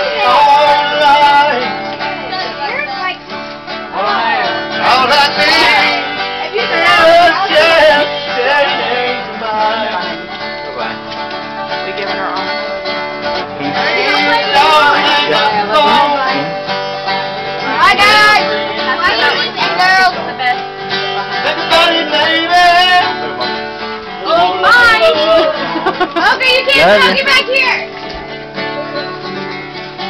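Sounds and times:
person singing: 0:00.0 - 0:02.6, 0:04.0 - 0:10.6, 0:13.5 - 0:16.7, 0:24.2 - 0:26.2
guitar playing: 0:00.0 - 0:30.0.

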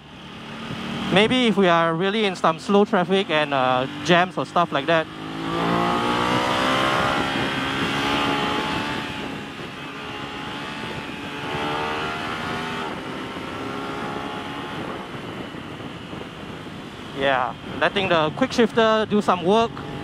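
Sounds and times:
motorcycle engine accelerating: 0:00.0 - 0:20.0
wind rushing: 0:04.9 - 0:19.2.

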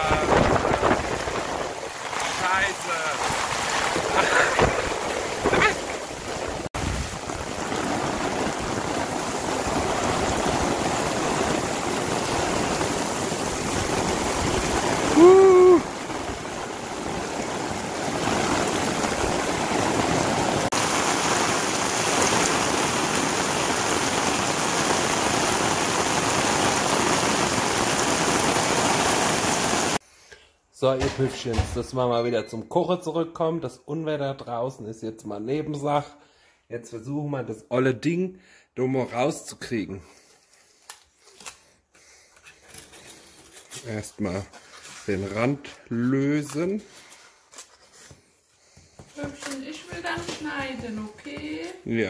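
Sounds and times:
heavy rain on roofs and street: 0:00.0 - 0:30.0, 0:43.0 - 0:47.5, 0:48.8 - 0:52.0.

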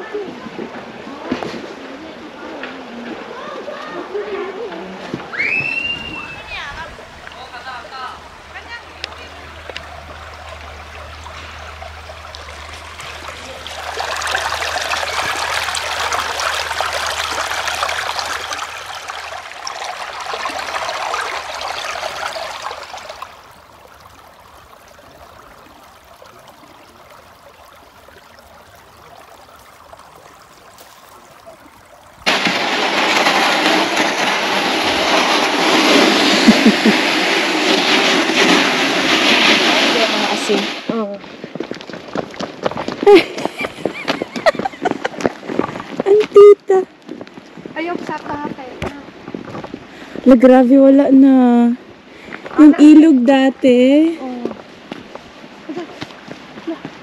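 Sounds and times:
water trickling in stream: 0:00.0 - 0:57.0
sled scraping over snow: 0:32.2 - 0:46.5.

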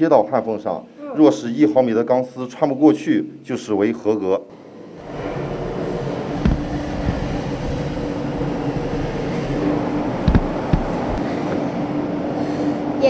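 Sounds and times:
industrial machinery drone: 0:04.5 - 0:13.0
short knocks: 0:06.4 - 0:07.2, 0:10.2 - 0:11.2.

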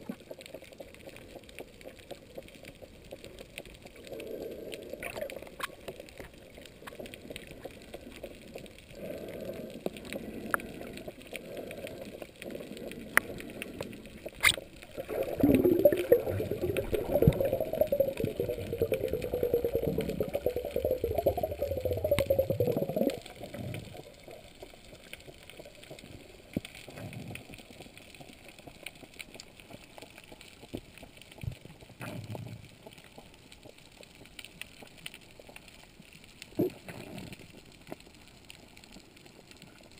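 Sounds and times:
muffled underwater gurgling: 0:14.7 - 0:24.3.

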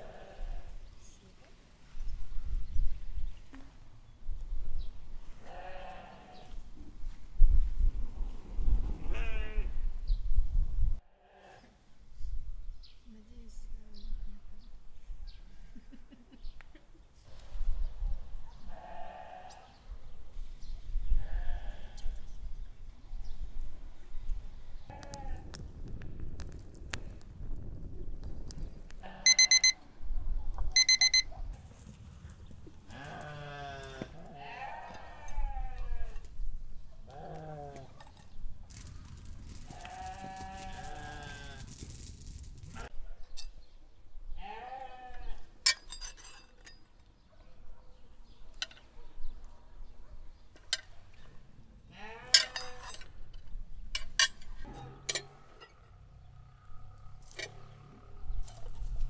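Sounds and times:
farm animal bleating: 0:00.0 - 0:00.8, 0:05.4 - 0:06.6, 0:09.1 - 0:09.8, 0:11.1 - 0:11.8, 0:18.7 - 0:19.8, 0:21.1 - 0:22.2, 0:29.0 - 0:29.7, 0:32.9 - 0:36.3, 0:37.1 - 0:38.0, 0:39.7 - 0:41.8, 0:44.4 - 0:45.5, 0:51.9 - 0:53.0
thermometer alarm rapid high beeps: 0:29.3 - 0:29.8, 0:30.8 - 0:31.3.

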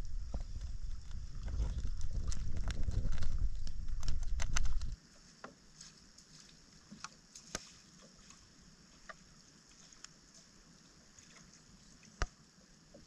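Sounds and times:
footsteps wading through water: 0:05.7 - 0:12.1.

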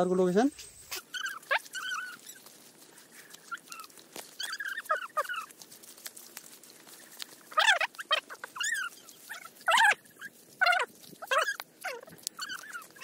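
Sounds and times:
high-pitched animal cries: 0:00.9 - 0:02.5, 0:03.4 - 0:05.6, 0:07.5 - 0:13.0.

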